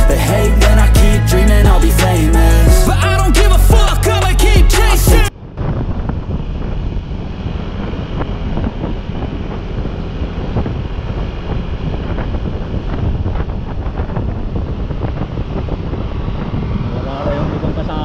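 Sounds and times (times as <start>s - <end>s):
wind buffeting microphone: 5.3s - 18.0s.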